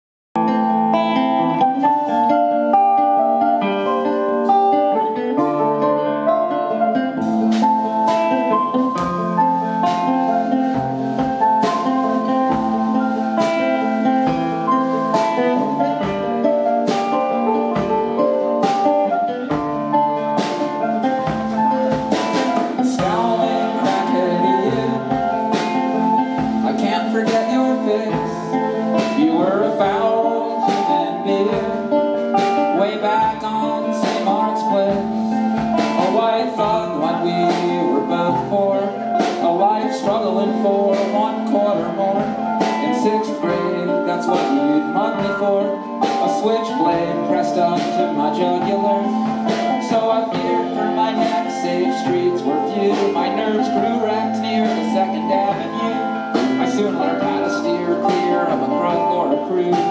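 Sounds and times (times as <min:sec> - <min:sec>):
bass guitar: 0:00.4 - 0:59.9
drum kit beat: 0:00.4 - 0:59.9
strummed guitar: 0:00.4 - 0:59.9.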